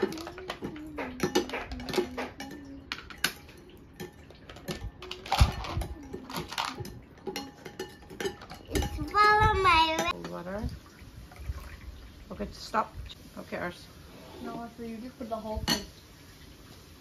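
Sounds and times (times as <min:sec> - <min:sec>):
spoons clinking against glass bowls: 0:00.0 - 0:10.4, 0:15.6 - 0:15.9.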